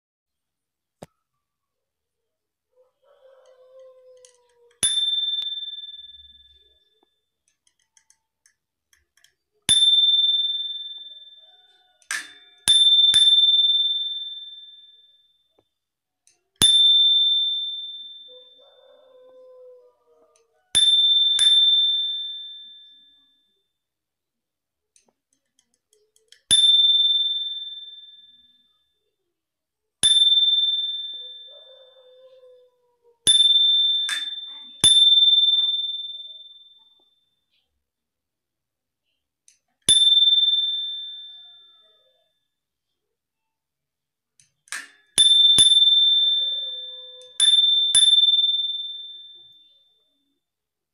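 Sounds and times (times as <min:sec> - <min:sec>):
bicycle bell ringing: 0:04.2 - 0:08.2, 0:09.2 - 0:15.7, 0:16.4 - 0:19.1, 0:20.7 - 0:23.7, 0:26.2 - 0:29.1, 0:30.0 - 0:32.4, 0:33.3 - 0:37.4, 0:39.9 - 0:42.3, 0:44.7 - 0:50.4.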